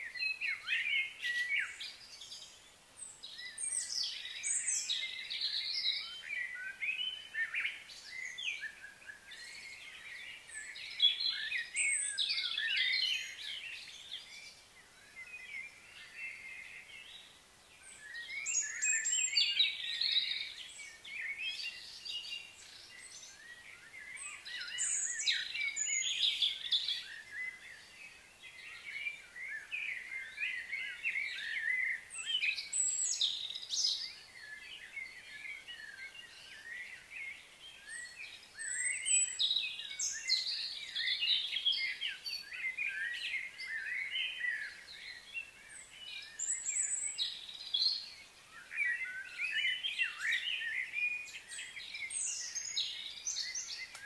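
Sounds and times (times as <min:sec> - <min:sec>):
birds chirping and calling: 0:00.0 - 0:54.0
faint outdoor hiss: 0:00.0 - 0:54.0.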